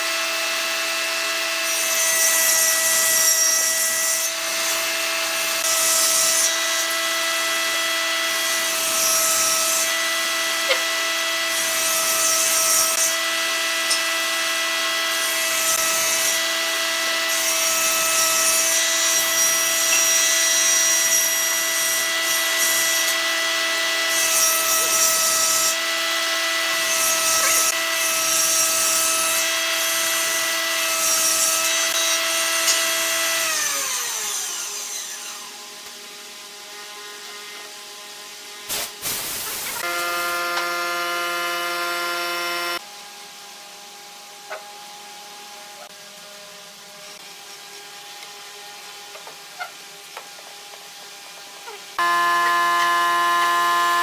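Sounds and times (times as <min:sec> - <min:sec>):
rope rasping through wood: 0:26.9 - 0:27.8.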